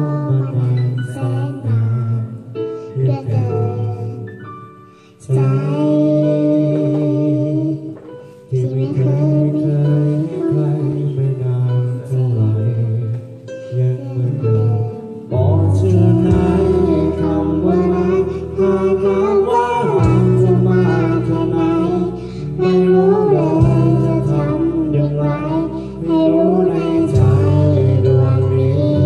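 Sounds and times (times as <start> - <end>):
person singing through microphone: 0.0 - 29.0
backing track with guitar: 13.1 - 29.0.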